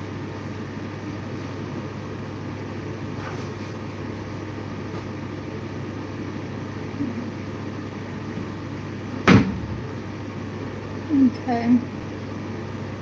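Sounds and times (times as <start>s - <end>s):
sharp loud knock: 9.2s - 9.8s.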